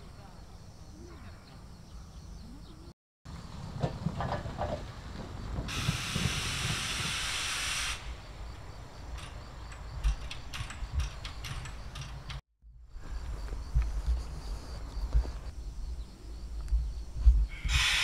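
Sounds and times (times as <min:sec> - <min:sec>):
steam hissing: 0:05.7 - 0:08.2, 0:17.6 - 0:18.0.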